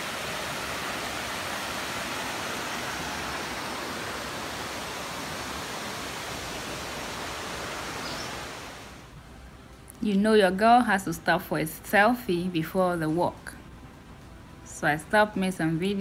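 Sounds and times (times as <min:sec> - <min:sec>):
creek water cascading over rocks: 0:00.0 - 0:09.0.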